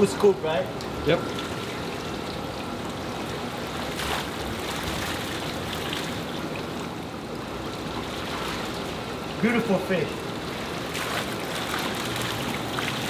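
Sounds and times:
water running from pipes: 0:00.0 - 0:13.0
water splash: 0:03.7 - 0:06.4, 0:10.6 - 0:13.0.

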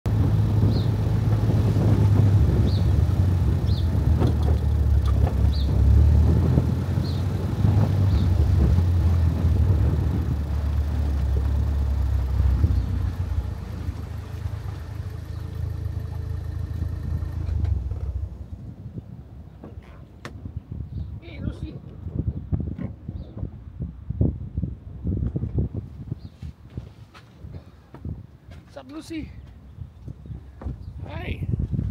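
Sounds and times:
car engine and road rumble: 0:00.0 - 0:31.9.

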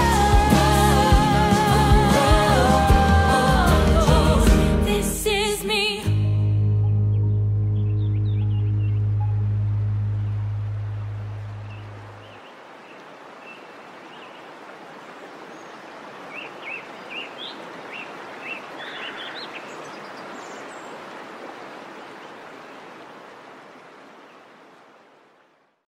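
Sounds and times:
bird chirping: 0:06.9 - 0:14.5, 0:15.6 - 0:21.0
stream babbling over rocks: 0:09.6 - 0:25.7.

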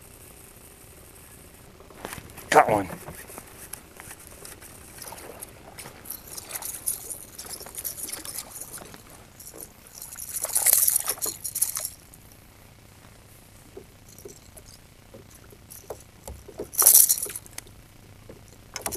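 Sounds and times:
short ticks and rattles: 0:03.7 - 0:12.3, 0:13.7 - 0:18.9.

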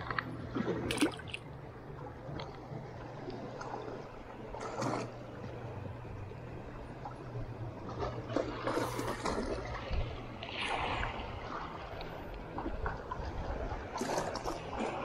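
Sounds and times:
short splashy clicks: 0:00.0 - 0:01.4
seawater lapping around rocks: 0:00.0 - 0:15.0.

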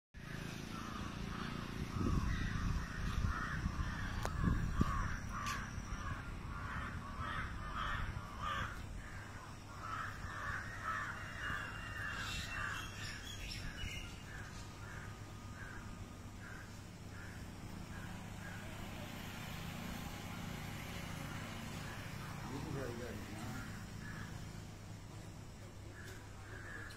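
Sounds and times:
crows cawing: 0:00.2 - 0:19.8, 0:20.4 - 0:26.9
steady low rumble: 0:01.0 - 0:10.3.

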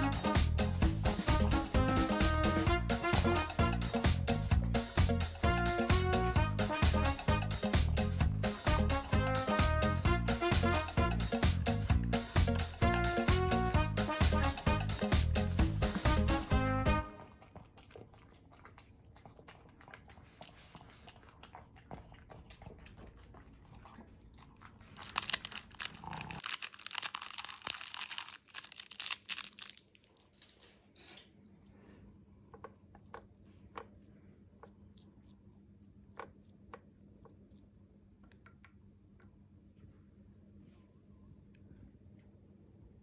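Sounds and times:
dog crunching food: 0:17.3 - 0:30.9
paper sachet rustling: 0:25.0 - 0:30.6.

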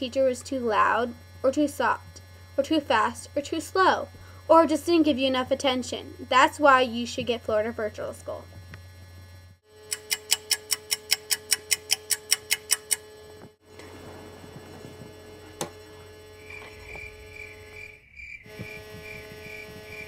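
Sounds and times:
clock ticking fast: 0:09.8 - 0:13.2
digital alarm clock beeping: 0:09.8 - 0:13.2.

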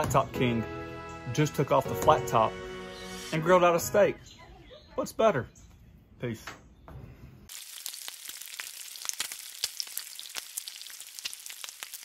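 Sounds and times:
bacon sizzling: 0:07.5 - 0:12.0
fat popping and crackling: 0:07.5 - 0:12.0.

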